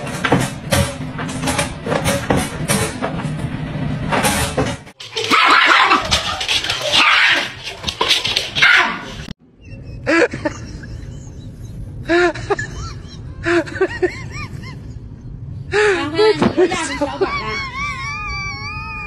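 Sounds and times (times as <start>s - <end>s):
loud rough rustling with clicks: 5.0s - 9.4s.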